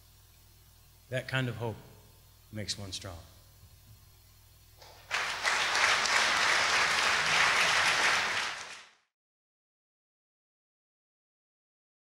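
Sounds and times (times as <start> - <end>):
audience applauding: 4.8 - 9.1.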